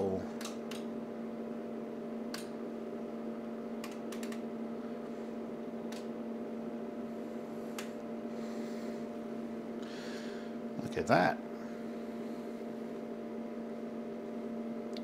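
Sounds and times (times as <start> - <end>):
steady low hum: 0.0 - 15.0
sharp control clicks: 0.4 - 0.9, 2.3 - 2.5, 3.8 - 4.4, 5.9 - 6.1.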